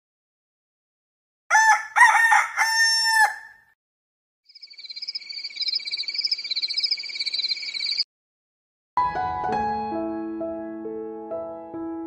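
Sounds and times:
rooster crowing: 1.5 - 3.7.

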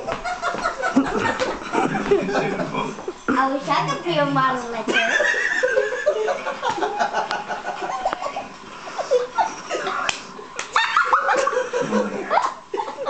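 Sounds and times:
people laughing: 0.0 - 4.1, 4.9 - 13.0.

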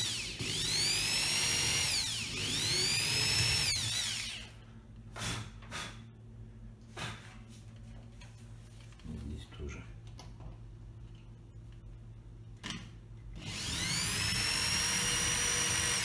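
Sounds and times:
electric drill whining: 0.0 - 4.5, 13.4 - 16.0.

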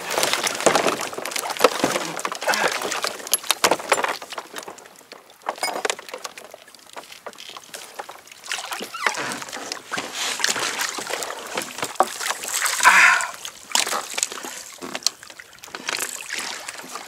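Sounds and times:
water sloshing against a hull: 0.0 - 17.0.

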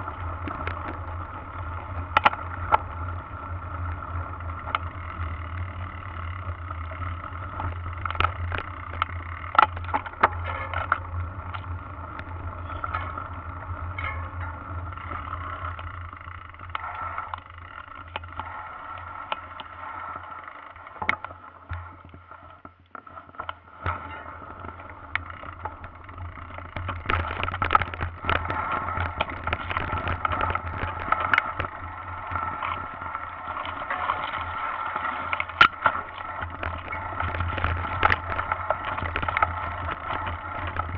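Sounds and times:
bike knocking and rattling: 0.0 - 40.9
bike rumbling over dirt trail: 0.0 - 40.9.

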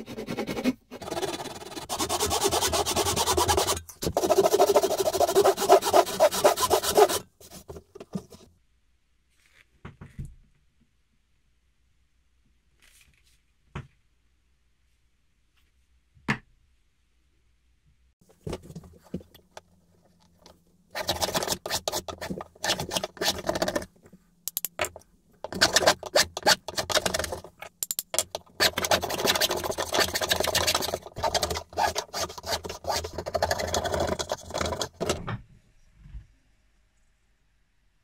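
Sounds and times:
hand plane shaving wood: 0.0 - 7.8, 21.0 - 23.9, 28.5 - 35.0.

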